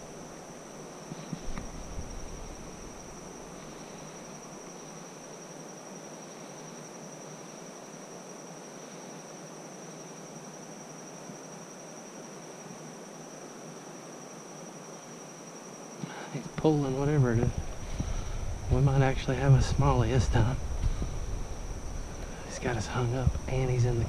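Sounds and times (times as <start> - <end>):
insects trilling: 0.0 - 24.0
swift river water rushing: 16.5 - 24.0.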